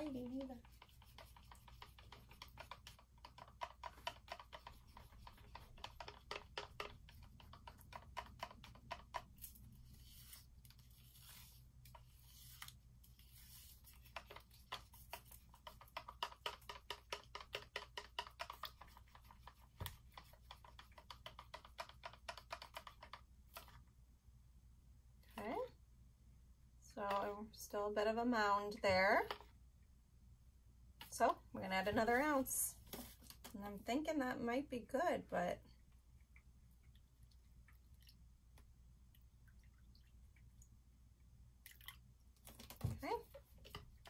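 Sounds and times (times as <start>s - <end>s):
stir stick scraping plastic cup: 0.0s - 23.8s, 28.7s - 29.5s.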